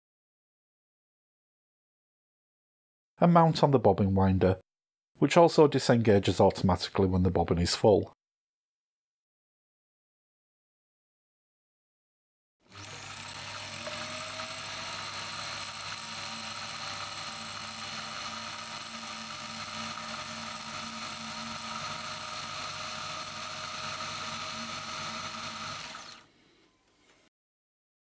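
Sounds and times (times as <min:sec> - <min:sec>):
sewing machine motor running: 0:12.7 - 0:26.3.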